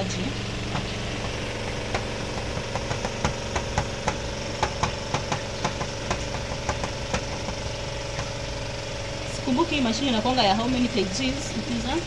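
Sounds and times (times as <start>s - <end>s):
spin dryer motor hum: 0.0s - 12.0s.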